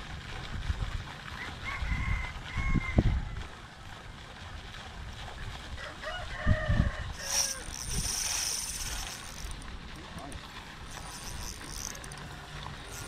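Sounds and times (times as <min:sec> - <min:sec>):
rooster crowing: 0:05.8 - 0:07.8
high rapidly pulsing buzz: 0:07.1 - 0:09.6, 0:10.9 - 0:13.0.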